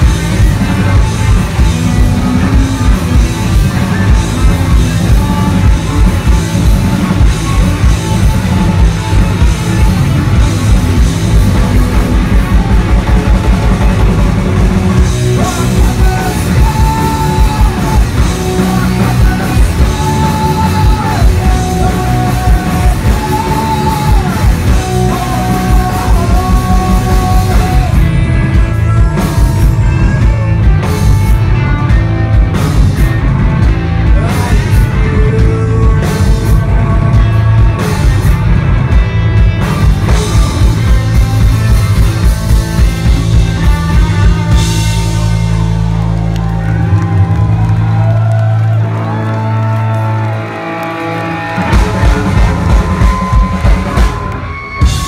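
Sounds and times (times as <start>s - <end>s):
rock band playing live: 0.0s - 55.0s
person singing: 14.8s - 32.1s, 34.0s - 38.4s, 40.0s - 41.8s, 51.3s - 55.0s.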